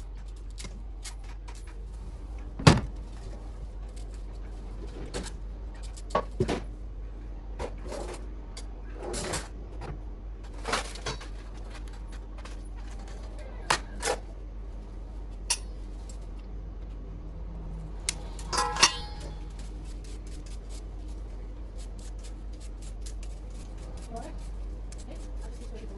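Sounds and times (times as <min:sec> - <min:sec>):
steady low hum: 0:00.0 - 0:25.9
utensils clinking on metal: 0:18.3 - 0:19.6
knife cutting and scraping potato: 0:18.3 - 0:25.9.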